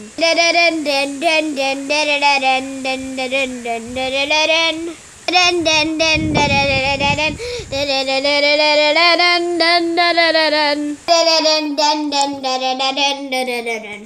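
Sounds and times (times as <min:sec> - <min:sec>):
child singing wordless tune: 0:00.0 - 0:14.0
low rumble: 0:05.4 - 0:08.9.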